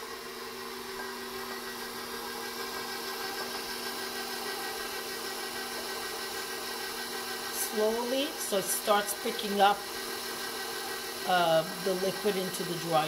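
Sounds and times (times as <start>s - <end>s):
stand mixer motor whining: 0.0s - 13.0s.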